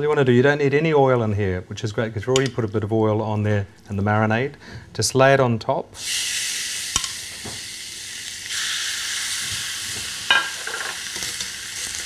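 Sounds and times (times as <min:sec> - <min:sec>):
meat sizzling on griddle pan: 0:06.0 - 0:12.0.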